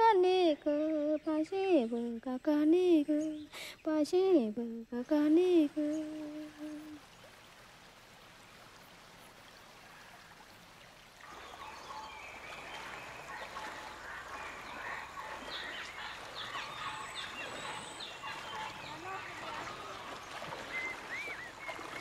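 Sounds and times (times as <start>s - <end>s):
chorus of chirping animal calls: 11.3s - 22.0s.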